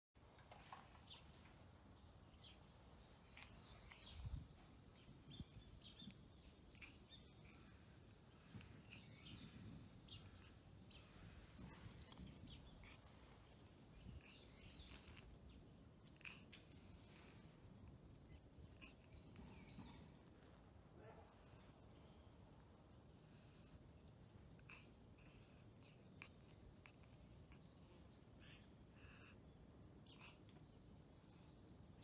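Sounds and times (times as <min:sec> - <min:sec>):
low outdoor background: 0:00.2 - 0:32.0
faint bird chirps: 0:02.3 - 0:17.5.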